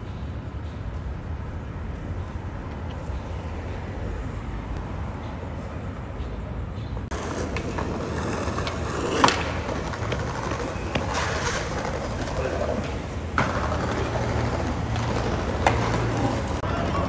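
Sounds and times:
city traffic rumble: 0.0 - 17.0
skateboard wheels rolling on pavement: 7.0 - 17.0.

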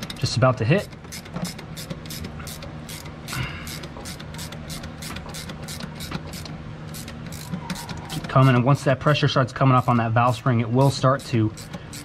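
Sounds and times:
steady low hum: 0.0 - 12.0
ratcheting wrench clicking: 0.8 - 8.6, 11.0 - 12.0.

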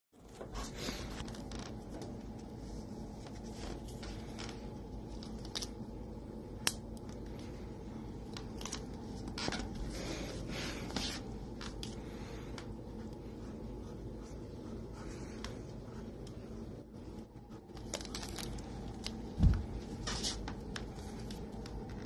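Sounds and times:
kitten playing with plastic straw: 17.7 - 19.2.

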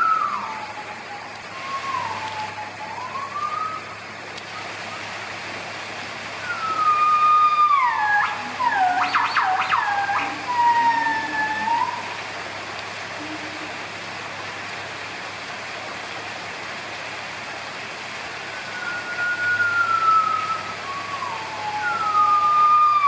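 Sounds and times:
distant siren wailing: 0.0 - 5.4, 6.1 - 14.0, 18.2 - 23.0
distant traffic hum: 0.0 - 23.0.

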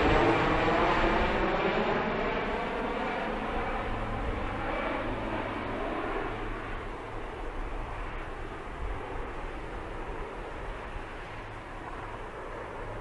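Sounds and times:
propeller planes passing overhead: 0.0 - 13.0.

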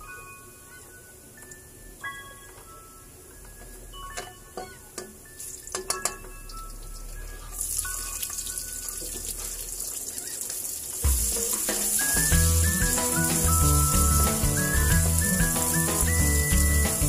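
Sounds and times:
garlic sizzling in oil: 7.6 - 17.0
onions sizzling in hot oil: 7.6 - 17.0.

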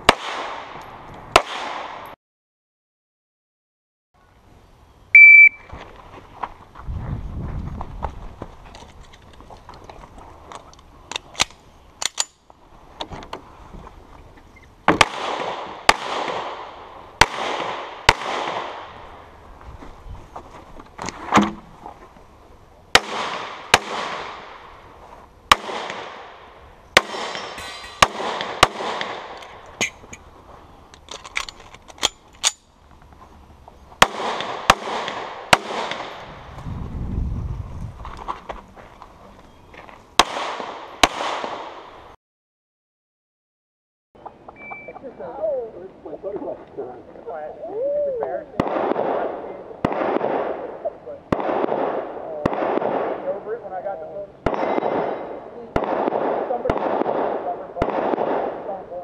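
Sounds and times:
pistol shots with echo: 0.1 - 2.0, 14.9 - 19.0, 23.0 - 24.6, 25.5 - 29.6, 34.0 - 36.3, 40.2 - 41.9, 48.6 - 53.4, 54.4 - 58.8.

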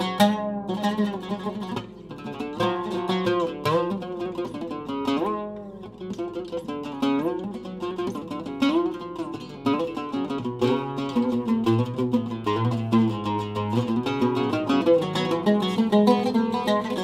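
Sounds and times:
oud melody plucked: 0.0 - 17.0.

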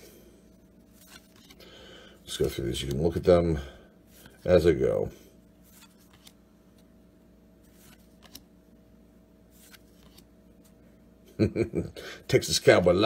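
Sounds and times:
steady low hum: 0.0 - 13.0
cardboard cards ticking and sliding: 0.4 - 1.7, 2.3 - 3.3, 5.6 - 6.9, 7.6 - 8.6, 9.4 - 10.8.

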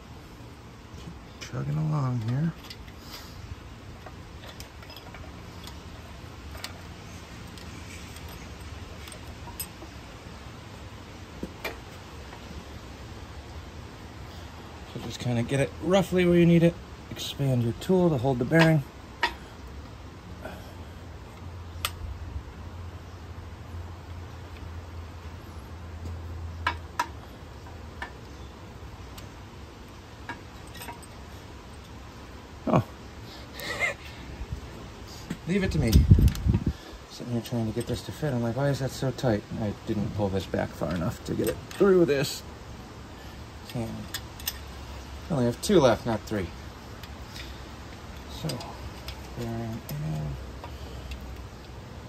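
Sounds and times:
steady low hum: 0.0 - 52.0
light metallic clicks and taps: 18.6 - 19.9, 26.0 - 28.4, 43.6 - 44.8, 47.0 - 51.8.

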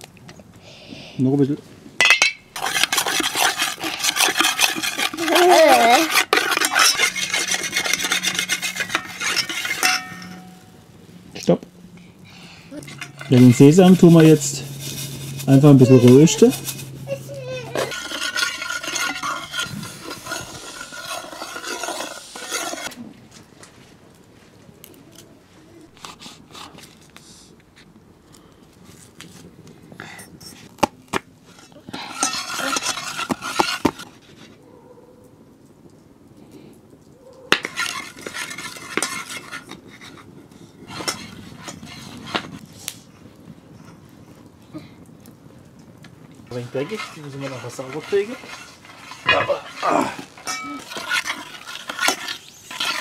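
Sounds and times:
metal spoon scraping metal pot: 2.0 - 10.7, 12.8 - 23.0, 31.5 - 34.4, 37.6 - 42.6, 46.5 - 53.0.

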